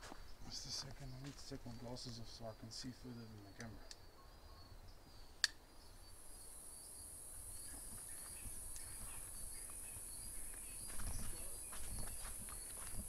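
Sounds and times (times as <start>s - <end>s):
faint insect chirps: 0.1s - 13.0s
sharp click: 3.4s - 4.0s, 5.4s - 5.6s
rustling in undergrowth: 7.5s - 13.0s.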